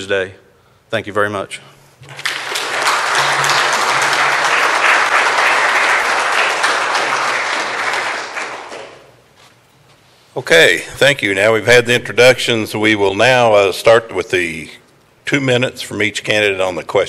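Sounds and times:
audience applauding: 0:02.0 - 0:09.2.

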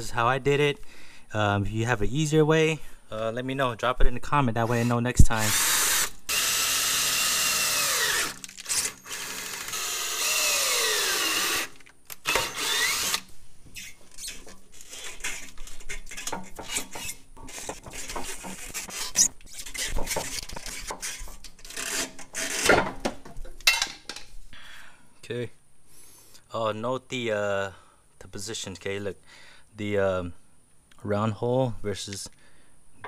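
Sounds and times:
cordless drill whining: 0:04.7 - 0:13.3
hand tools scraping and knocking: 0:13.7 - 0:24.3.

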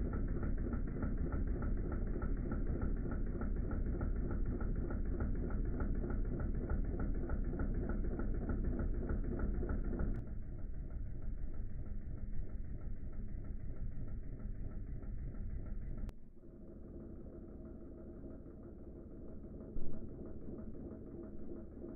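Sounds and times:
model steam engine chuffing: 0:00.0 - 0:16.1.

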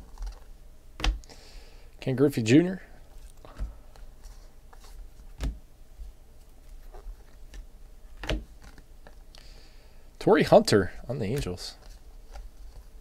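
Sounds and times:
trading cards clicking and rustling: 0:00.0 - 0:01.3, 0:11.0 - 0:13.0.

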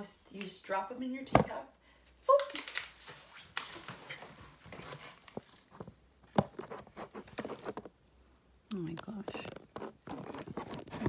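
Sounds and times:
rubbing and scuffing on microphone: 0:09.1 - 0:11.0.

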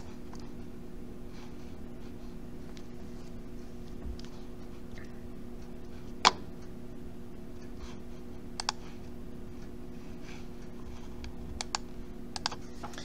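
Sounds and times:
faint electrical hum: 0:00.0 - 0:13.0
computer mouse clicks: 0:08.6 - 0:08.8, 0:11.2 - 0:12.6.

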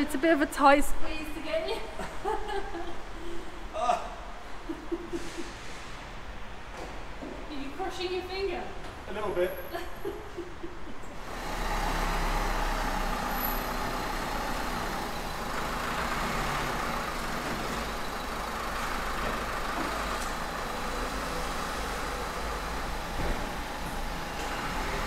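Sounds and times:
car engine rumbling: 0:11.1 - 0:25.0.

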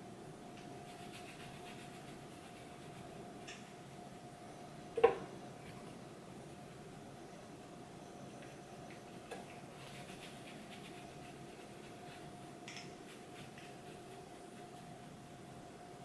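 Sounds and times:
faint steady hum: 0:00.0 - 0:16.0
brush strokes on skin: 0:00.8 - 0:03.1, 0:09.7 - 0:15.0.

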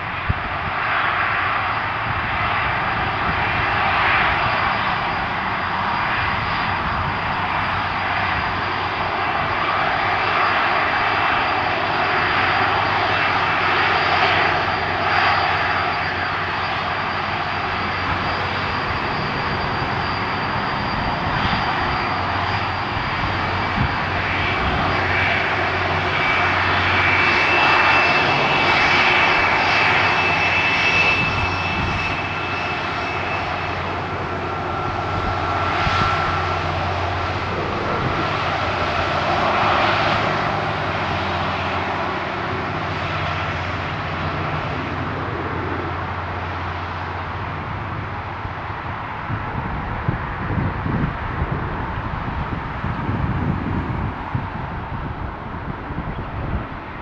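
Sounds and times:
jet engines taxiing: 0:00.0 - 0:57.0.

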